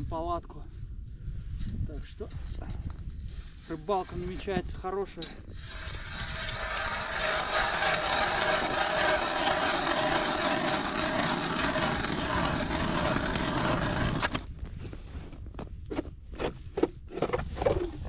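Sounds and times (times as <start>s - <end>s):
hand ice auger grinding ice: 5.5s - 14.6s, 15.9s - 18.0s.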